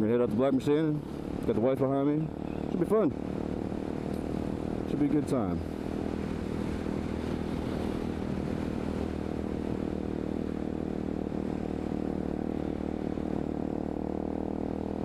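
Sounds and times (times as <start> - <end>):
motorcycle engine cruising: 0.0 - 15.0
rushing wind noise: 2.3 - 13.5.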